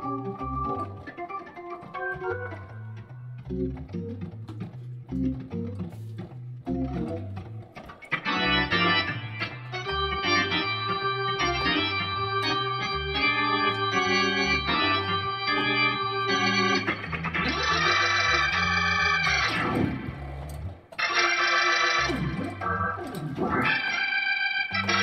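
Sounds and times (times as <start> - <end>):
tonewheel organ playing chords: 0.0 - 25.0.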